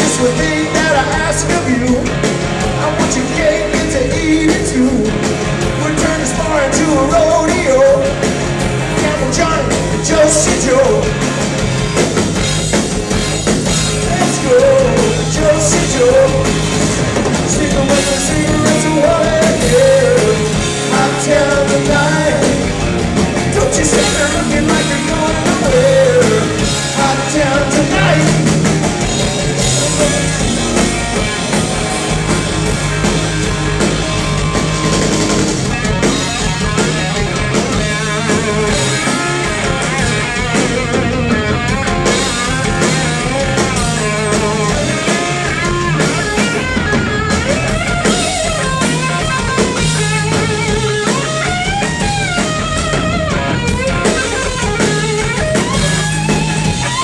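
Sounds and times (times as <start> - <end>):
bass guitar: 0.0 - 57.0
drum kit: 0.0 - 57.0
lead electric guitar solo: 27.9 - 57.0.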